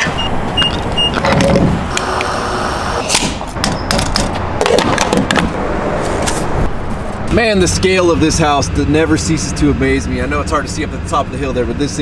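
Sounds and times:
steady low rumble: 4.4 - 12.0.

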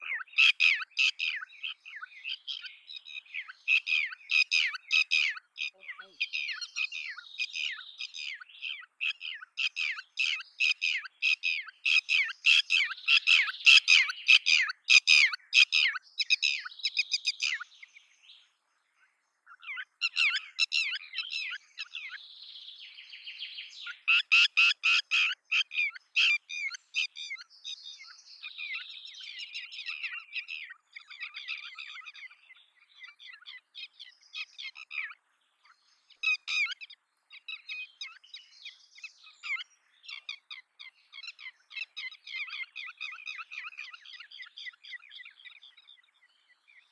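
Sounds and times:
lapwing calling: 0.0 - 17.8, 19.5 - 22.2, 23.6 - 35.2, 36.1 - 46.0.

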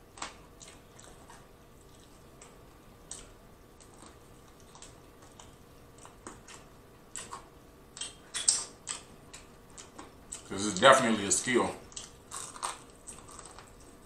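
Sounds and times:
wet mouth clicks and smacks: 4.5 - 10.5.

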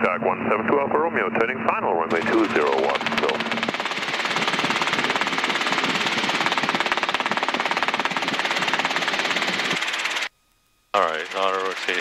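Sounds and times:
helicopter rotor pulsing: 2.1 - 10.3, 11.0 - 12.0.

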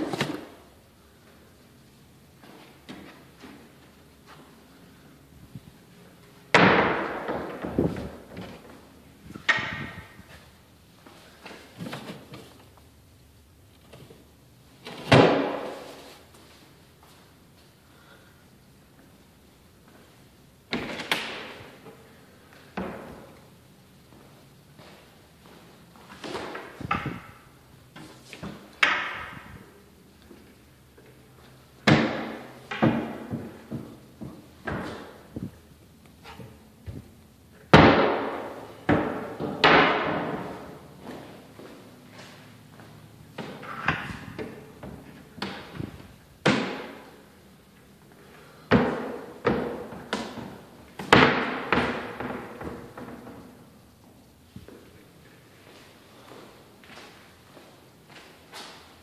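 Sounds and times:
cabinet doors opening and shutting: 0.0 - 0.7, 6.5 - 10.4, 20.7 - 21.8, 26.2 - 27.4, 31.8 - 35.5, 43.4 - 47.2, 48.7 - 53.5
wooden cabinet doors banging shut: 6.5 - 8.5, 37.7 - 40.7, 48.7 - 53.4.

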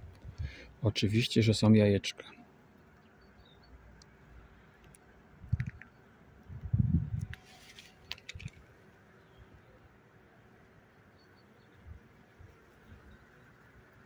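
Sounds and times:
light clicks: 8.0 - 8.6.

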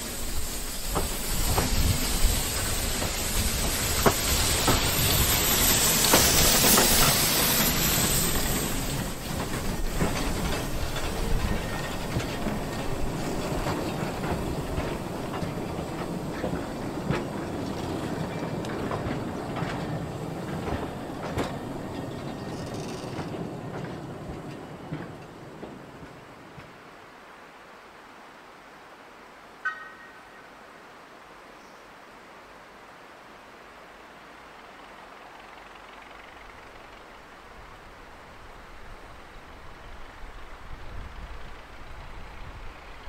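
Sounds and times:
steam hissing: 0.0 - 26.6
wheels clicking over rail joints: 0.8 - 26.8.

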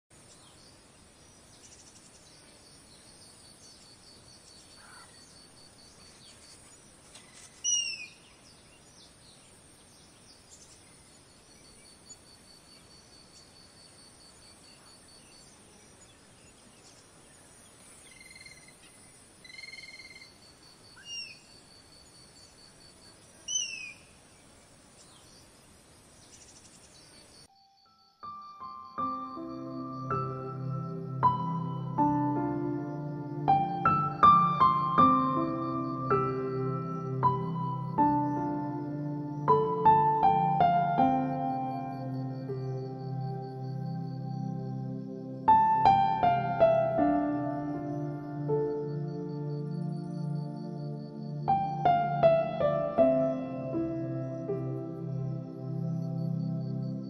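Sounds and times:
faint hiss: 0.1 - 57.0
pulsing insect trill: 0.6 - 6.8, 10.9 - 57.0
birds calling: 6.0 - 8.5, 23.4 - 24.2.

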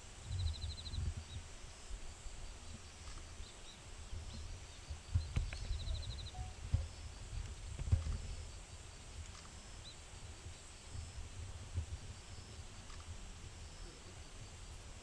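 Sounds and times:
small birds chirping: 0.2 - 11.3.

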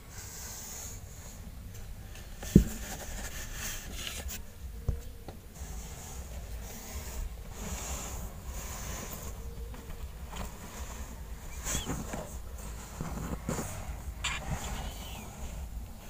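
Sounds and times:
fabric rustling: 5.6 - 16.0
cat sniffing: 10.8 - 15.6.

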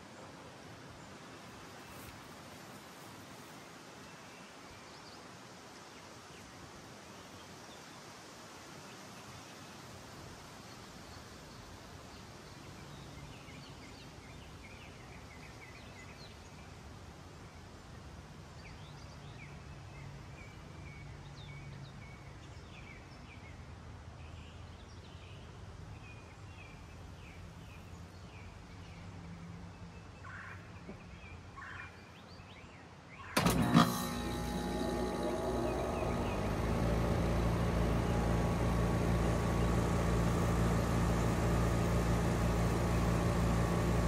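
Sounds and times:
small birds chirping: 0.9 - 5.3, 34.4 - 44.0
compressor humming: 33.4 - 44.0
faint steady hum: 33.4 - 44.0
heat pump starting with jolt: 33.4 - 44.0.

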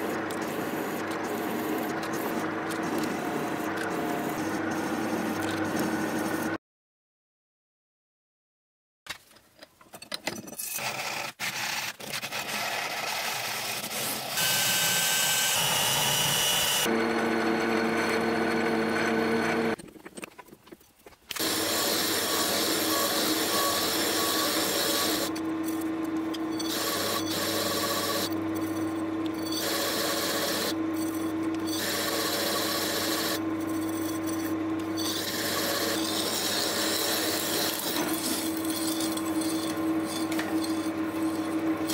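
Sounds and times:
milling machine cutting metal: 14.2 - 19.8, 21.4 - 41.9
steady milling tone: 14.4 - 19.8, 21.4 - 41.9.

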